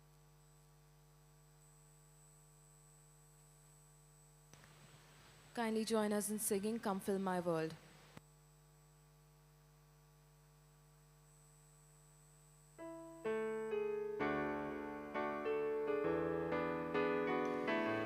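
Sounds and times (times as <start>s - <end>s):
faint steady hum: 0.0s - 18.0s
keyboard playing hymn chords: 12.8s - 18.0s.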